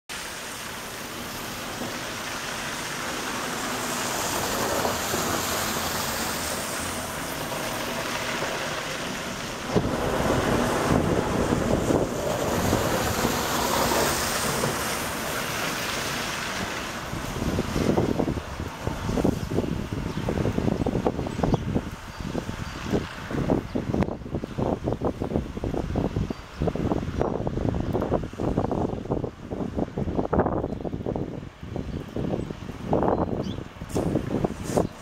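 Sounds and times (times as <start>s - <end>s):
tyres hissing on slush: 0.1s - 20.5s, 33.8s - 35.0s
wind buffeting microphone: 1.0s - 35.0s.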